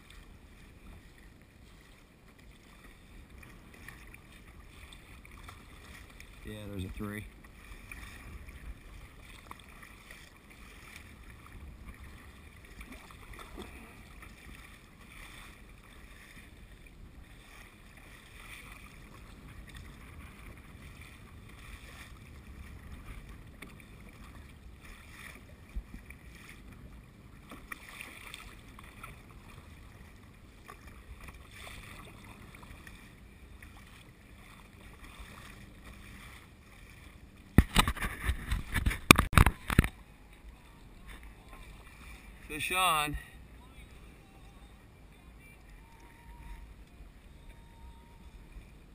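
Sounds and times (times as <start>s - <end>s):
low wind rumble: 0.0s - 27.5s
paddle blades splashing: 0.0s - 48.9s
water washing along hull: 0.0s - 48.9s.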